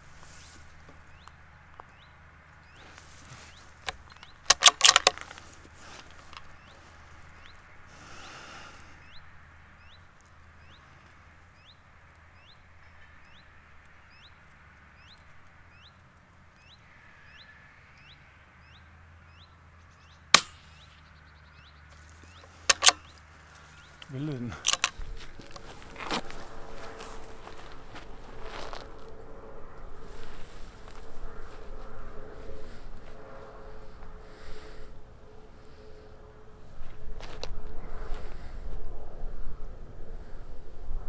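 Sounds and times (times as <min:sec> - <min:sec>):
steady low hum: 0:00.0 - 0:41.0
loud sharp clicks: 0:03.8 - 0:05.5, 0:20.3 - 0:20.8, 0:22.4 - 0:23.2, 0:24.0 - 0:25.0
rifle shot: 0:20.3 - 0:20.8.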